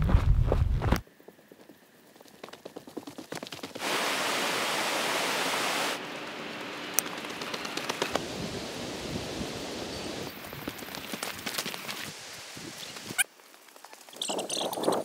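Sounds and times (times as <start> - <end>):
footfalls running on dirt: 0.0 - 3.8, 10.3 - 12.2
rushing outdoor noise: 1.6 - 14.1.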